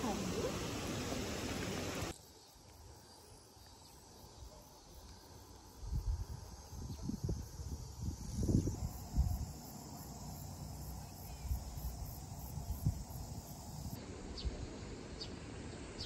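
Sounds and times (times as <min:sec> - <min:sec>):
wind buffeting microphone: 0:06.0 - 0:09.6.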